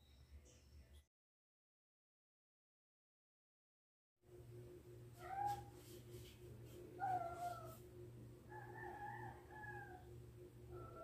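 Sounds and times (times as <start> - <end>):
steady low hum: 4.3 - 11.0
cat meowing behind a door: 5.2 - 5.7.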